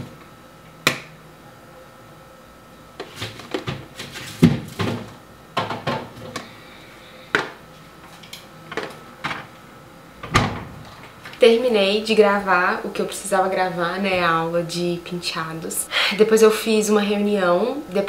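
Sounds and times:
plastic containers clattering: 0:03.0 - 0:06.4
fridge door thudding shut: 0:10.2 - 0:10.8.

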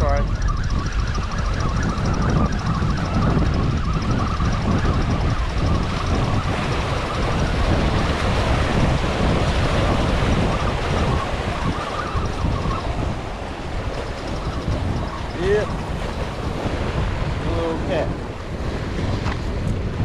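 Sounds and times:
wind buffeting microphone: 0:00.0 - 0:20.0
waves splashing over rocks: 0:06.4 - 0:20.0.

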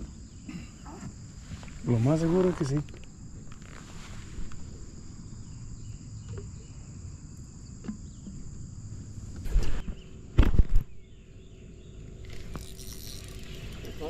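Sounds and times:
insects trilling: 0:00.0 - 0:14.0.

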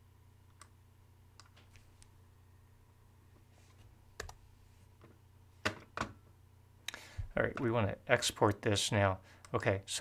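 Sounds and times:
faint low hum: 0:00.0 - 0:10.0
computer mouse clicks: 0:01.4 - 0:02.1.

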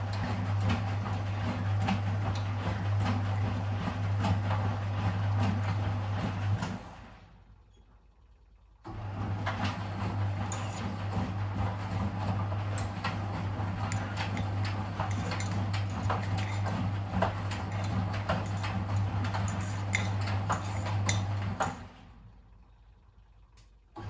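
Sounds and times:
washing machine motor hum: 0:00.0 - 0:24.0.

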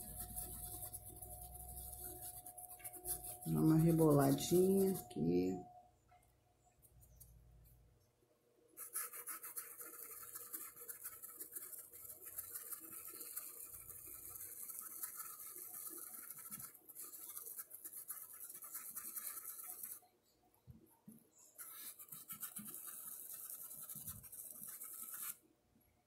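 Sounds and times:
paintbrush scrubbing in cup: 0:00.0 - 0:05.5, 0:08.8 - 0:20.1, 0:21.6 - 0:25.4.

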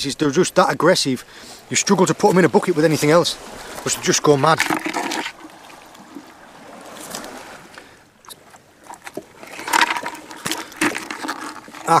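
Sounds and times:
water sloshing and splashing: 0:00.0 - 0:12.0.

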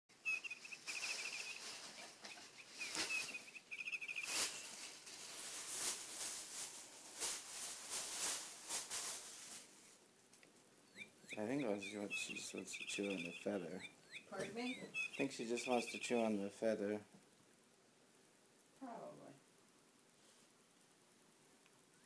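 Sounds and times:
toy bird chirping trills: 0:00.2 - 0:04.9, 0:10.9 - 0:16.4
cat scuffling with toy on carpet: 0:04.2 - 0:10.0.

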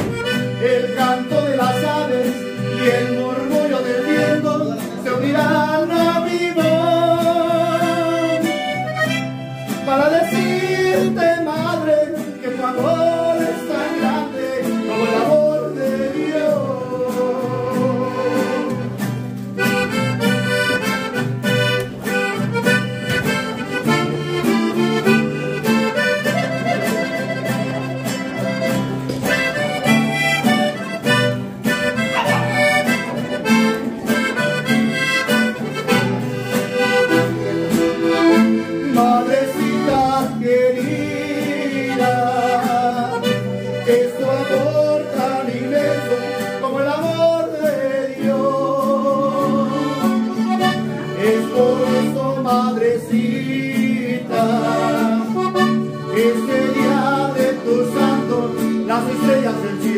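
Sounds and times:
accordion playing quick runs: 0:00.0 - 0:05.0, 0:07.8 - 0:11.0, 0:12.0 - 0:15.6, 0:17.9 - 0:40.3, 0:41.0 - 0:46.9, 0:49.6 - 0:52.4, 0:54.2 - 0:59.8
person singing: 0:00.0 - 0:09.0, 0:09.7 - 0:18.9, 0:38.1 - 0:59.9.

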